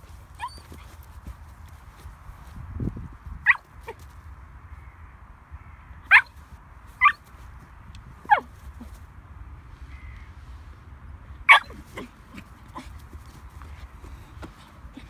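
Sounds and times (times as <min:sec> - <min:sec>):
puppy yipping barks: 0:00.4 - 0:00.9, 0:03.4 - 0:04.0, 0:06.1 - 0:06.4, 0:07.0 - 0:07.2, 0:08.3 - 0:08.5, 0:11.5 - 0:12.1.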